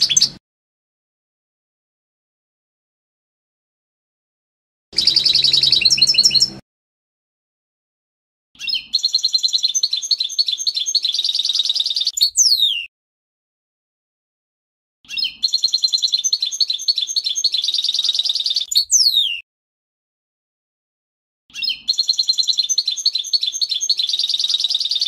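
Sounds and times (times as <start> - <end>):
finch singing twittering song: 0.0 - 0.4, 5.0 - 6.6, 8.6 - 12.9, 15.1 - 19.4, 21.5 - 25.0.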